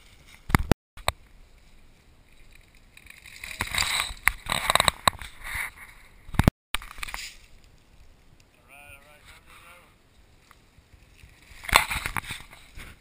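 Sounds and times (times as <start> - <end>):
bike tyres crunching through leaves: 10.0 - 13.0.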